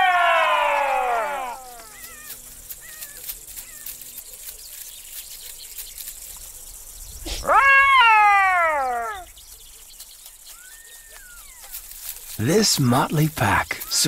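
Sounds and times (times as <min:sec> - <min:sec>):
jackal howling: 0:00.0 - 0:03.8, 0:07.3 - 0:09.3.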